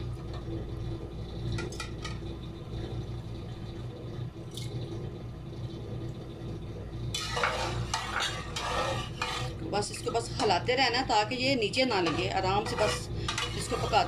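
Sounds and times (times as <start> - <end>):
light drips and clicks: 4.4 - 6.8
metal spoon scraping metal pot: 7.2 - 10.6, 11.6 - 14.0.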